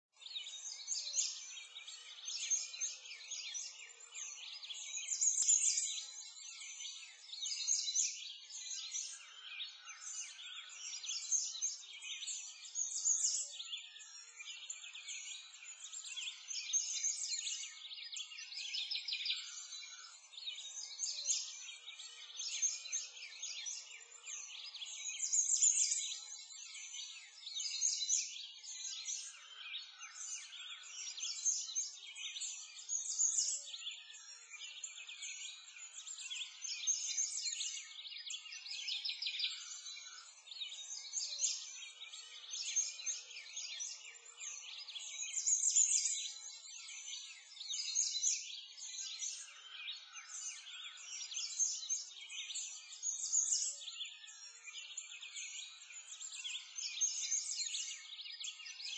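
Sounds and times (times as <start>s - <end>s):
small birds chirping and singing: 0.0s - 58.9s.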